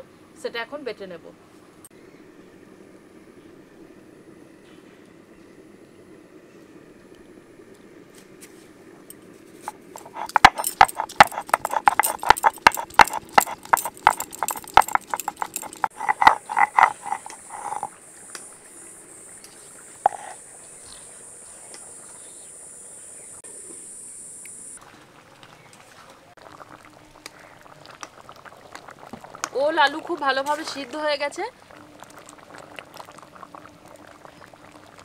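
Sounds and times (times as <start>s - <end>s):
stone knocking on stone: 10.0s - 17.9s, 20.1s - 20.4s.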